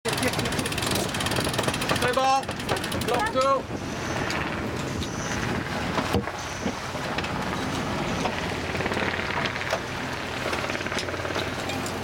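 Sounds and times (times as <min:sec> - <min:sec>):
sharp clicks and knocks: 0:00.8 - 0:03.5
wind rushing: 0:01.1 - 0:09.7.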